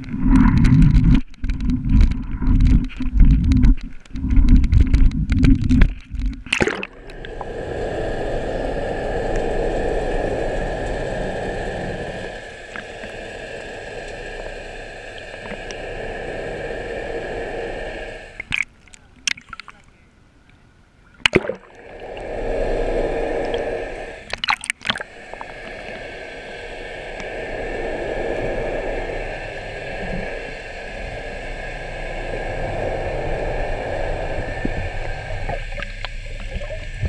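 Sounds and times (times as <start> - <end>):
muffled underwater hum: 0.0 - 18.6, 21.7 - 37.0
wind and water buffeting: 0.0 - 20.0, 21.2 - 37.0
faint high whine: 0.0 - 37.0
sharp splash: 21.2 - 21.7.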